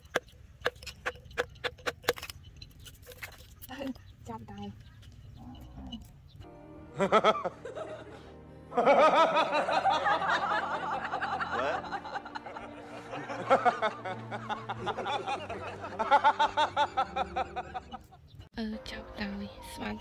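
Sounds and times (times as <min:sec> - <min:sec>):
music: 0:05.5 - 0:20.0
man laughing: 0:07.0 - 0:18.2.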